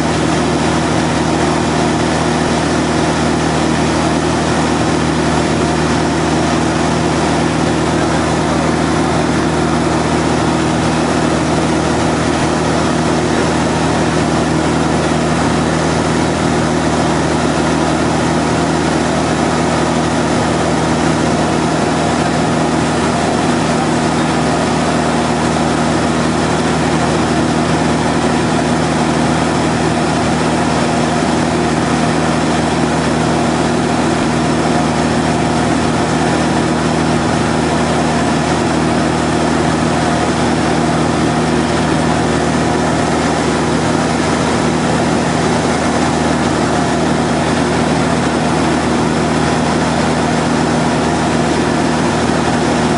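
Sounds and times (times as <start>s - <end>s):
aircraft engine drone in cockpit: 0.0s - 52.9s.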